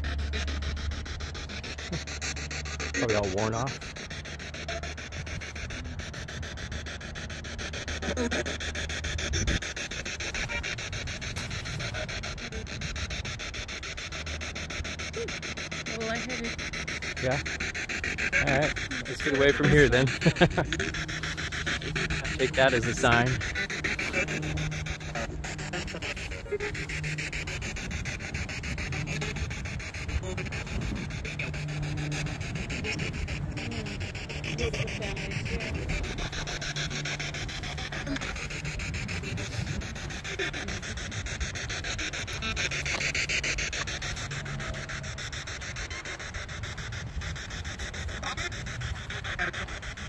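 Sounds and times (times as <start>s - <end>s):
radio static crackling: 0.0s - 6.2s, 9.2s - 50.0s
faint hum: 0.0s - 50.0s.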